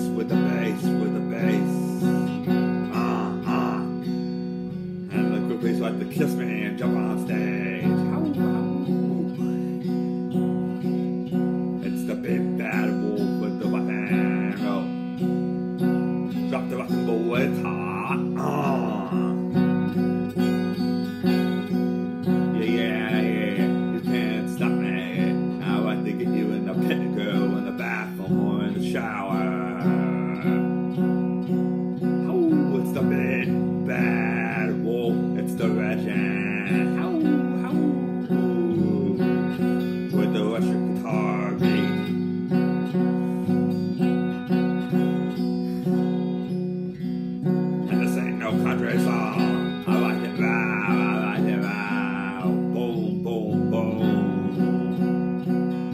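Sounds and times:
electric guitar strumming: 0:00.0 - 0:55.9
person singing: 0:00.0 - 0:55.9.

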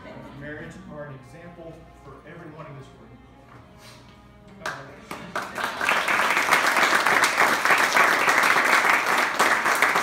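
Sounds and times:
crowd applauding: 0:04.6 - 0:10.0.

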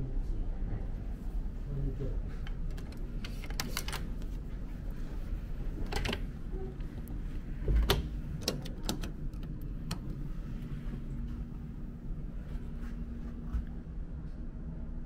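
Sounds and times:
door lock and latch clicks: 0:07.7 - 0:10.1.

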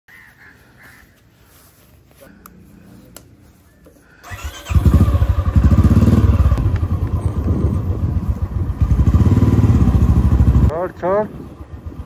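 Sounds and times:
motorcycle engine idling: 0:04.2 - 0:12.0.

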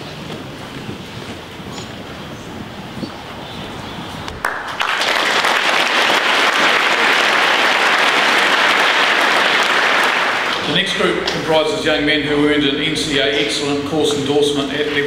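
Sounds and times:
room noise: 0:00.0 - 0:15.0
audience applauding: 0:04.4 - 0:11.5.

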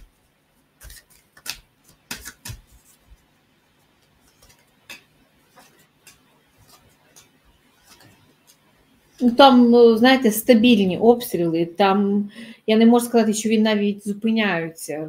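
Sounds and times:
cards being shuffled: 0:00.1 - 0:09.2.

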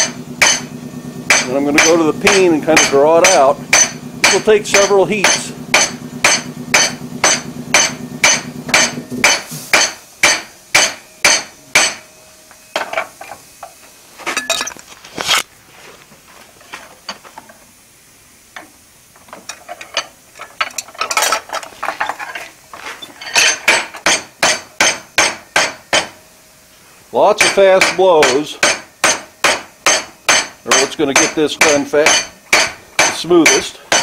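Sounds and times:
hammer ringing on hot steel: 0:00.0 - 0:13.0, 0:23.7 - 0:26.2, 0:27.3 - 0:34.0.

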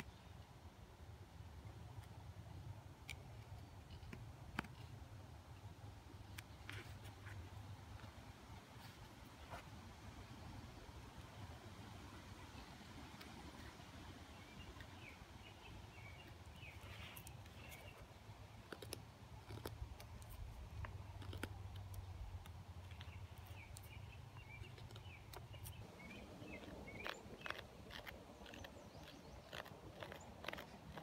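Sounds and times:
birds chirping: 0:13.6 - 0:19.7, 0:22.8 - 0:31.0.

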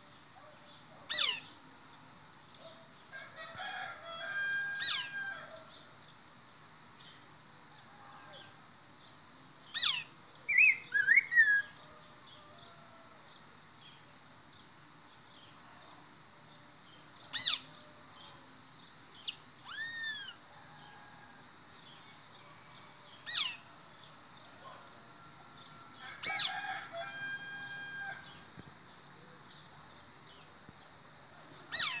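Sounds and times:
bird sharp calls: 0:01.1 - 0:01.5, 0:17.3 - 0:17.7, 0:23.3 - 0:23.7, 0:25.8 - 0:26.7, 0:31.7 - 0:32.0
bird whistled notes: 0:09.8 - 0:11.7
bird rattling trill: 0:25.0 - 0:27.4.

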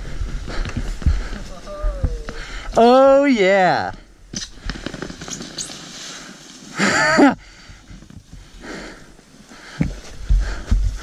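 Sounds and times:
faint outdoor noise: 0:00.0 - 0:11.0
person yelling: 0:01.5 - 0:03.8.

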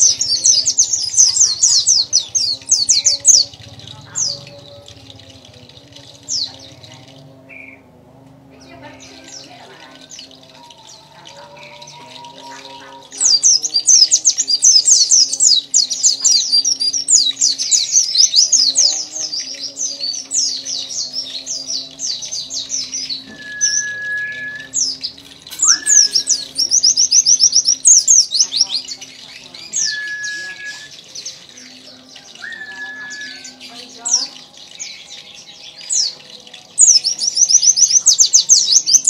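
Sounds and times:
bird singing high notes: 0:08.6 - 0:39.0.

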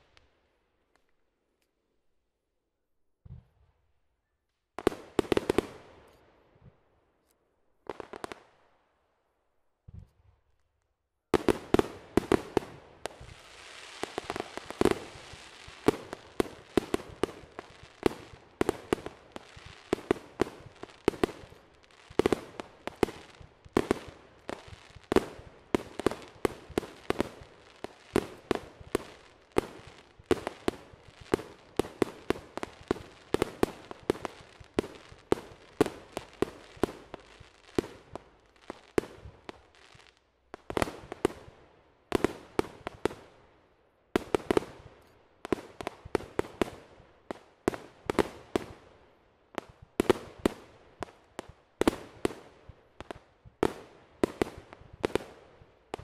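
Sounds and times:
fireworks bangs: 0:11.4 - 0:40.0
fireworks crackling hiss: 0:11.4 - 0:41.5.

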